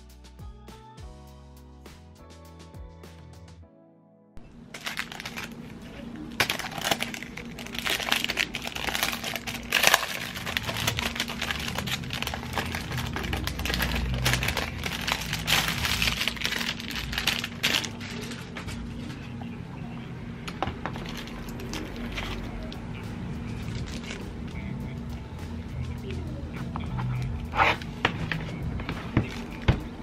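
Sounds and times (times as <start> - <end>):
plastic wrapping crinkling: 4.6 - 19.3, 20.9 - 22.8, 23.5 - 24.3, 27.6 - 30.0.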